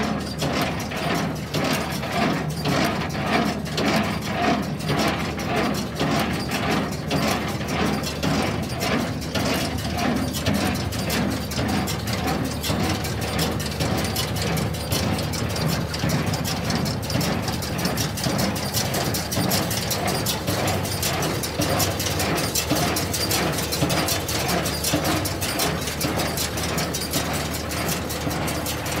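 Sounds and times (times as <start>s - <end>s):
hay baler clattering: 0.0s - 29.0s
tractor engine rumble: 0.0s - 29.0s.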